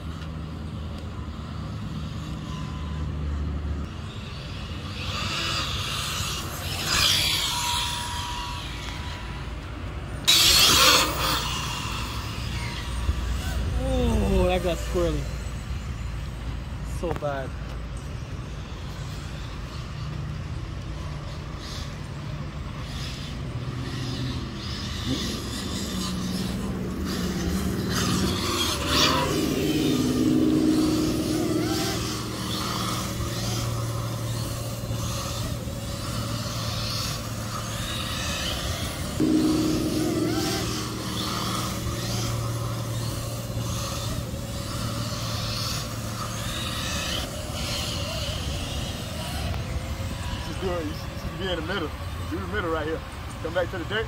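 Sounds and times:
electric rc car motor whine: 0.0 - 39.3, 41.2 - 54.0
steady low hum: 24.8 - 46.8.

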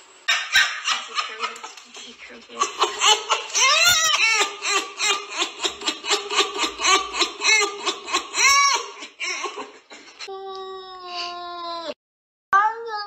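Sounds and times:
person laughing: 0.3 - 10.3.

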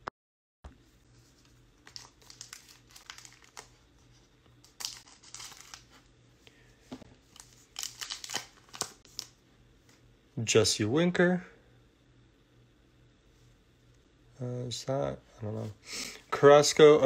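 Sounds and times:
plastic wrapper crinkling: 1.8 - 4.0, 4.6 - 6.0, 7.2 - 9.4.

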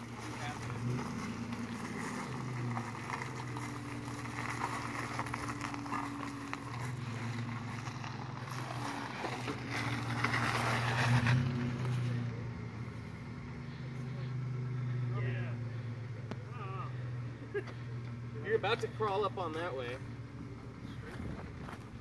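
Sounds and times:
tyres crunching on rock: 0.0 - 12.1
truck engine at low revs: 0.0 - 22.0.

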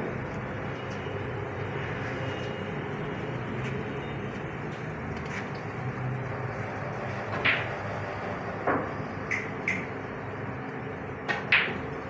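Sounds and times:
electric fan whirring: 0.0 - 12.0
snooker balls clicking: 8.6 - 10.0, 11.3 - 11.9.

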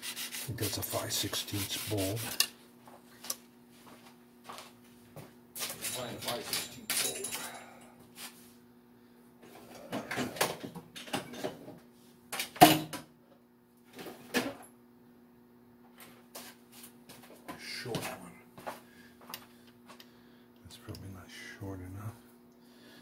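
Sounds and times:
faint steady hum: 0.0 - 23.0
metal hardware clanking and rattling: 5.8 - 7.8.

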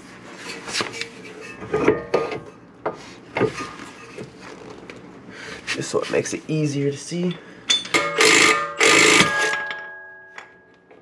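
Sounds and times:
metal suspension parts clanking: 7.7 - 10.0
sharp metal knocks ringing: 7.7 - 10.7.

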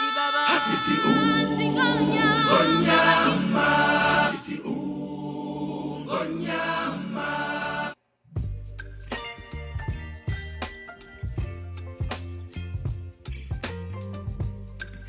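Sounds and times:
gospel choir singing: 0.5 - 8.0.

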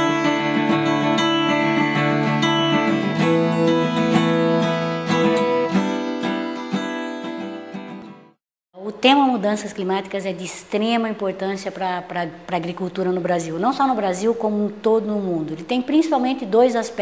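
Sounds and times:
instrumental intro music: 0.0 - 8.4.

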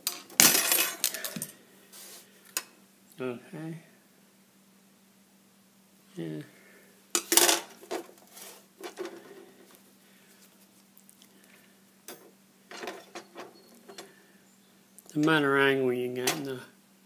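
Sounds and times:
metallic clinks and rattles: 0.0 - 1.6.

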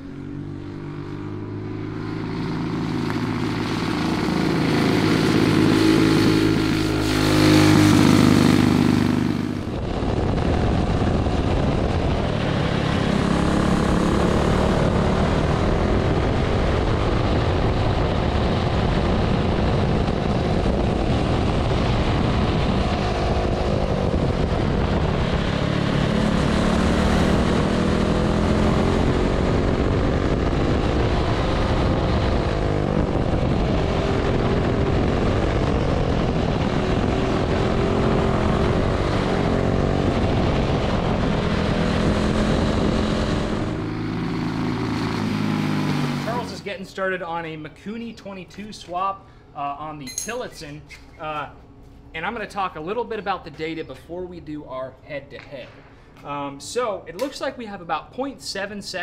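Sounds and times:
kart engine racing: 0.0 - 46.7.

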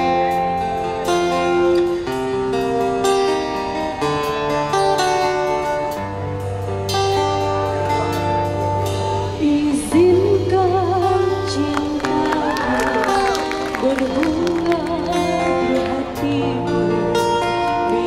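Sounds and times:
live band playing: 0.0 - 18.0
woman singing with vibrato: 9.4 - 18.0.

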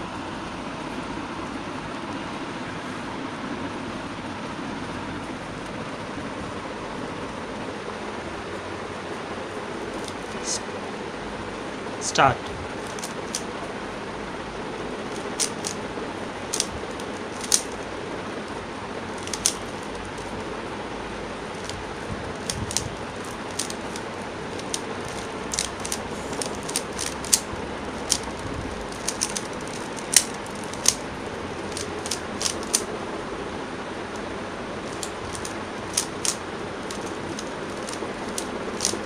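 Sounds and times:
steady background hiss: 0.0 - 39.0
puzzle cube layers clicking: 10.0 - 10.6, 12.8 - 13.5, 15.1 - 15.8, 16.5 - 17.8, 19.2 - 20.3, 21.6 - 21.8, 22.4 - 31.0, 31.7 - 32.9, 34.9 - 39.0.

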